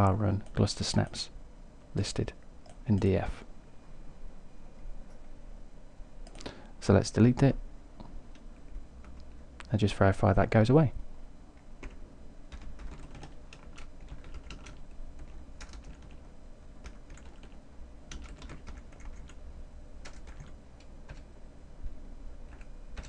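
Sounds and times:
faint low hum: 0.0s - 23.0s
keyboard typing: 11.8s - 19.4s, 20.0s - 21.3s, 22.5s - 23.0s.

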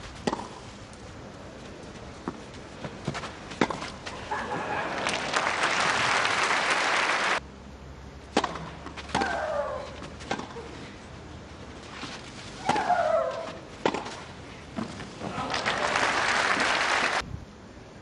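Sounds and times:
racket hitting tennis ball: 0.2s - 0.6s, 2.2s - 4.5s, 8.3s - 10.8s, 11.8s - 15.1s
crowd applause: 4.3s - 7.4s, 15.3s - 17.2s.

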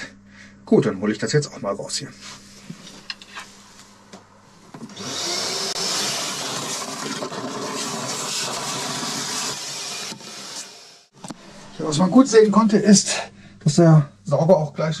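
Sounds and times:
wet vacuum sucking water: 5.0s - 10.7s.

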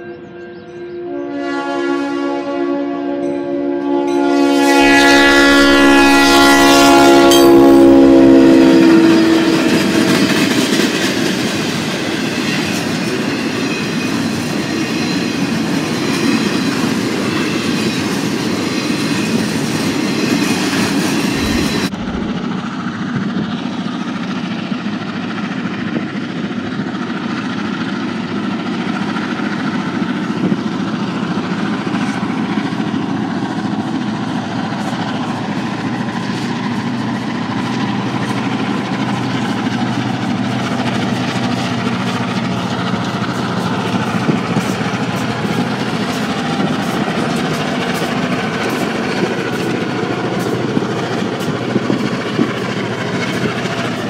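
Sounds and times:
diesel locomotives rumbling: 0.0s - 54.0s
locomotive air horn: 0.1s - 11.1s
train wheels clattering on rails: 8.5s - 54.0s.

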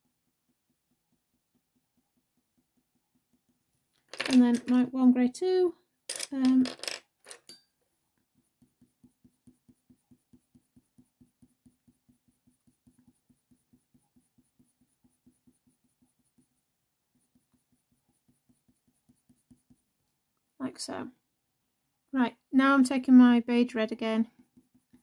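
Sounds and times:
coloured pencil scratching on paper: 0.0s - 3.8s, 8.0s - 20.0s, 23.5s - 25.0s.

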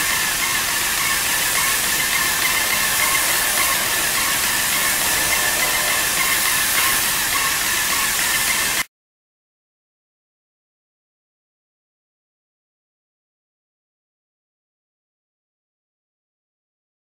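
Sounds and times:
paint sprayer hissing: 0.0s - 8.8s.

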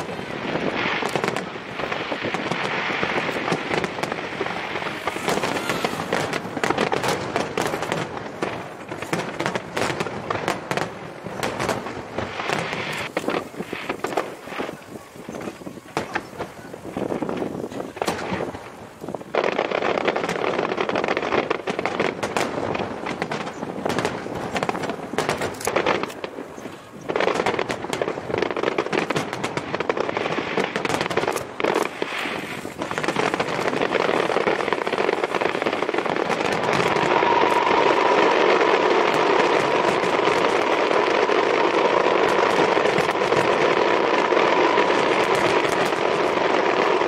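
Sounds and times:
firework shells bursting: 0.0s - 47.0s.

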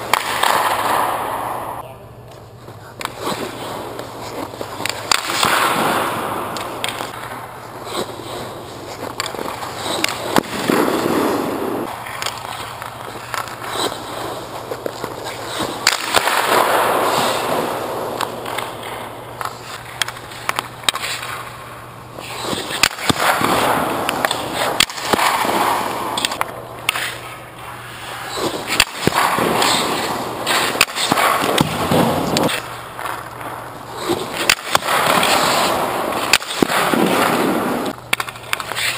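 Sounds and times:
skate blades scraping ice: 0.0s - 1.8s, 2.4s - 38.9s
sharp knocks on ice: 4.8s - 7.2s, 9.0s - 12.4s, 14.8s - 18.7s, 22.5s - 27.2s, 28.4s - 32.7s, 34.0s - 38.7s.

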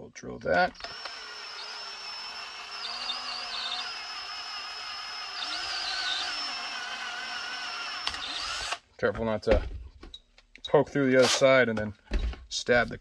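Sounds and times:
power drill boring plastic: 0.5s - 8.8s.

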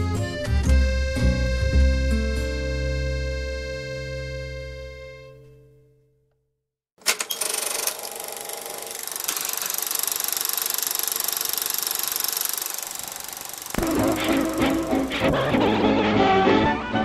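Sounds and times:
fast mechanical rattle with hiss: 7.1s - 15.3s.

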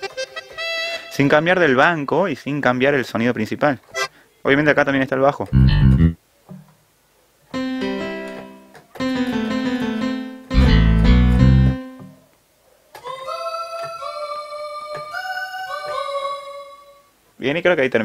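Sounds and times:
keyboard chords: 5.5s - 6.2s, 7.6s - 12.2s
keyboard melody of held notes: 5.5s - 6.2s, 7.6s - 12.2s
loud low bass notes: 5.5s - 6.2s, 10.5s - 11.8s.

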